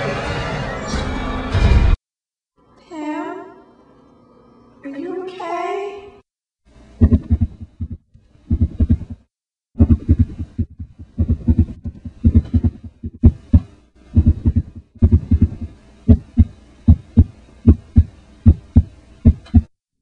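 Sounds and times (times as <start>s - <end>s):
heartbeat thumps: 7.0s - 19.7s.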